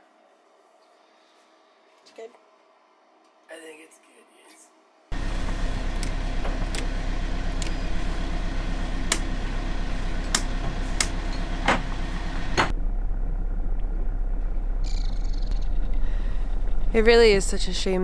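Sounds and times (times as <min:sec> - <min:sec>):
boat engine idling: 0:05.2 - 0:18.0
toggle switches clicking: 0:09.1 - 0:09.3, 0:10.3 - 0:11.8.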